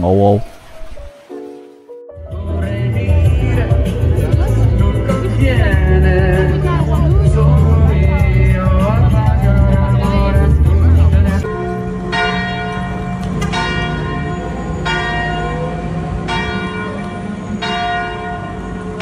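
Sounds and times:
background music with a beat: 1.1s - 11.5s
church bell tolling: 11.4s - 19.0s.

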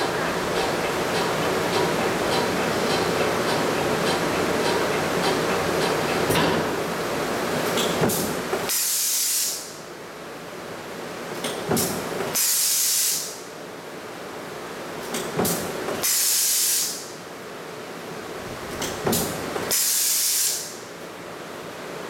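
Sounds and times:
compressed air hiss: 8.7s - 9.8s, 12.4s - 13.4s, 16.0s - 17.1s, 19.7s - 20.8s.

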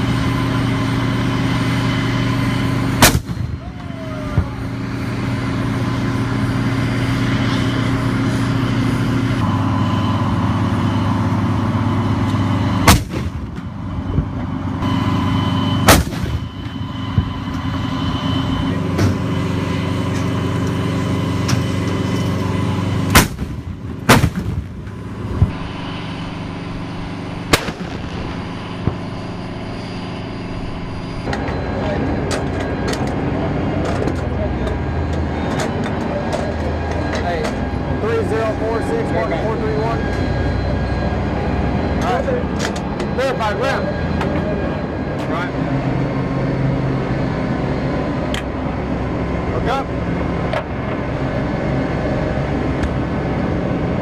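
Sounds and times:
diesel engines humming: 0.0s - 54.0s
cannon shots: 3.0s - 3.6s, 12.8s - 13.7s, 15.8s - 16.5s, 23.1s - 25.6s, 27.4s - 29.4s.

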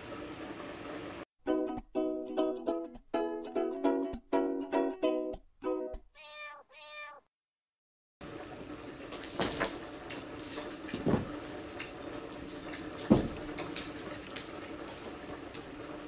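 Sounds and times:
knocks and thumps: 11.0s - 11.4s, 13.0s - 13.6s.

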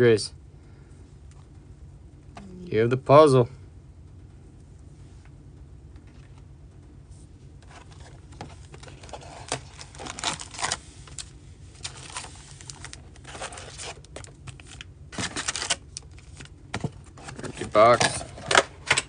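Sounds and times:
steady low hum: 0.0s - 19.0s
foil packs crinkling: 7.6s - 18.6s.

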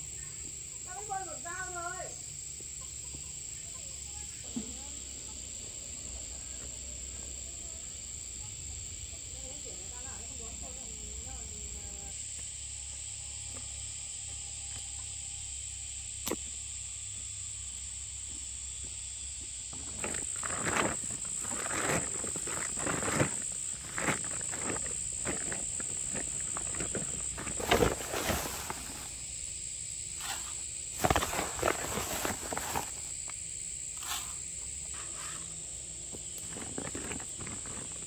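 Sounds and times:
insects droning: 0.0s - 38.0s
rustling and scuffing: 19.7s - 29.3s, 30.1s - 33.3s, 34.0s - 38.0s.

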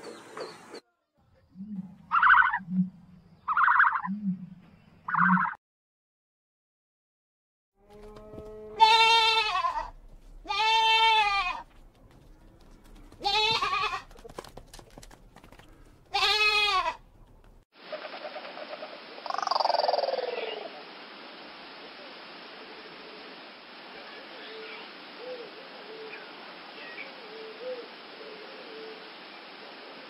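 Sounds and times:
goat bleating: 8.0s - 11.7s, 13.2s - 14.2s, 16.1s - 17.0s
steady hiss: 17.8s - 30.0s.

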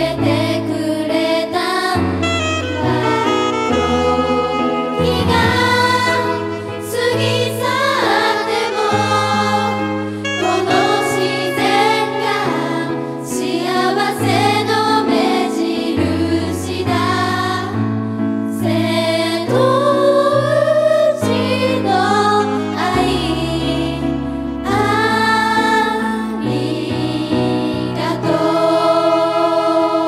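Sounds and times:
group of women singing in unison: 0.0s - 2.2s, 4.4s - 30.0s
instrumental accompaniment with bass: 1.8s - 15.0s.

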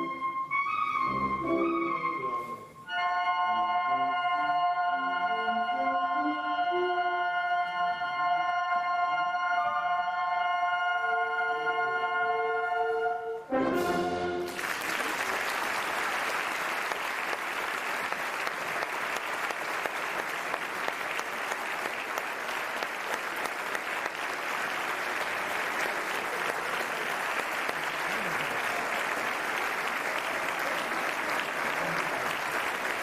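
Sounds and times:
audience applauding: 14.4s - 33.0s.

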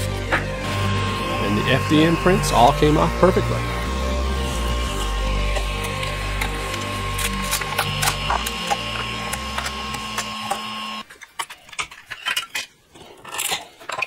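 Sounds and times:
stepper motors whining: 0.0s - 11.1s.

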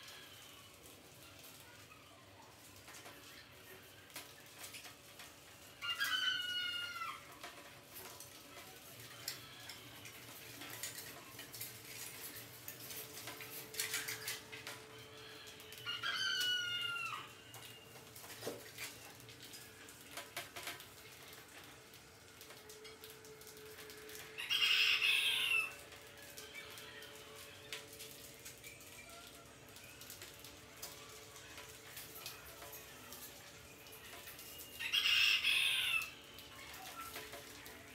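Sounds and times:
faint scattered clicks: 0.0s - 24.5s, 35.9s - 37.9s
chicken squawk: 5.8s - 7.2s, 15.8s - 17.3s, 24.4s - 25.8s, 34.8s - 36.2s
chickens calling: 5.8s - 7.3s, 15.7s - 17.4s, 24.3s - 25.8s, 34.6s - 36.2s.

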